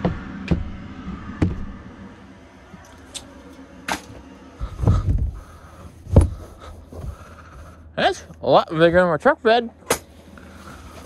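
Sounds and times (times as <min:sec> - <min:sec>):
heavy thump of seat moved: 0:04.7 - 0:07.2.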